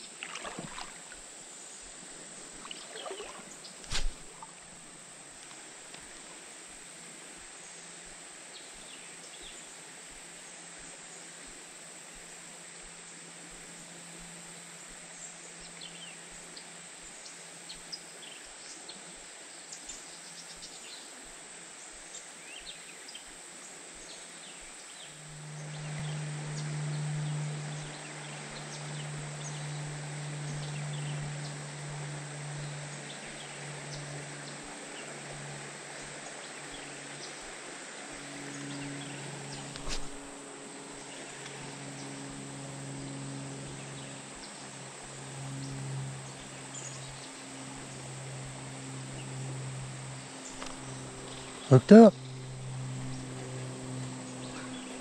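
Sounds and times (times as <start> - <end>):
low hum: 0.0 - 7.2, 23.8 - 55.0
insects droning: 0.0 - 55.0
short insect chirps: 2.5 - 4.8.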